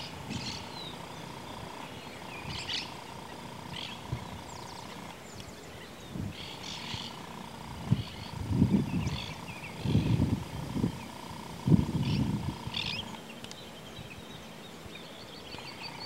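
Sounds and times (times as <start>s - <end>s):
wind gusts on microphone: 0.0s - 0.9s, 3.7s - 4.9s, 6.0s - 13.1s
small birds chirping: 0.0s - 16.0s.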